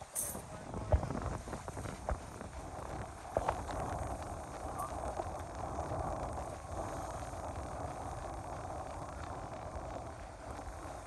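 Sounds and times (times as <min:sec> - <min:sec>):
hiss of open water: 0:00.0 - 0:11.0
wind buffeting microphone: 0:00.0 - 0:11.0.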